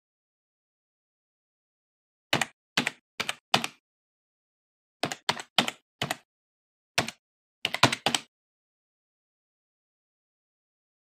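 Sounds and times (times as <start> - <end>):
keyboard keystrokes clicking: 2.4 - 3.8, 5.0 - 6.2, 7.0 - 8.3.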